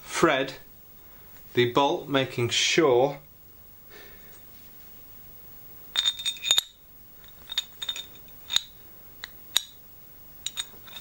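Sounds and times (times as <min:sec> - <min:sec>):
metal bolt clinking on metal plate: 0:06.0 - 0:08.7, 0:10.4 - 0:11.0.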